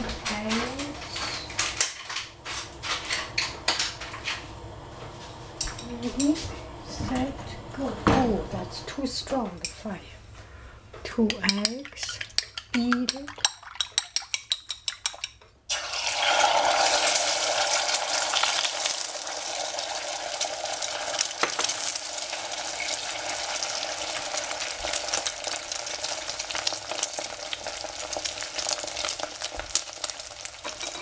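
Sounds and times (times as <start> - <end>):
stirring taps and scrapes: 9.5 - 15.6
eggs sizzling in a hot pan: 12.0 - 31.0.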